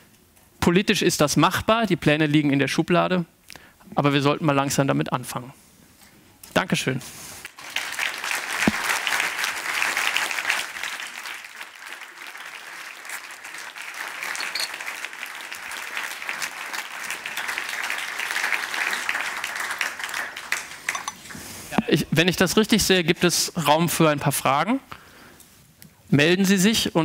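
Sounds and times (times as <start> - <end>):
large audience applauding: 7.4 - 21.4.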